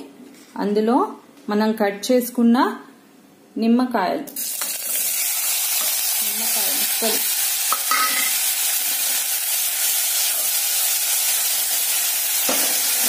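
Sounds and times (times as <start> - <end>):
lemon sizzling in hot oil: 4.4 - 13.0.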